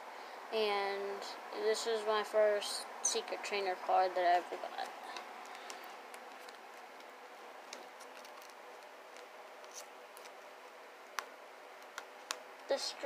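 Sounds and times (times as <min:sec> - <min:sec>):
steady low hiss: 0:00.0 - 0:13.0
rustling of plastic sleeve: 0:04.8 - 0:10.5.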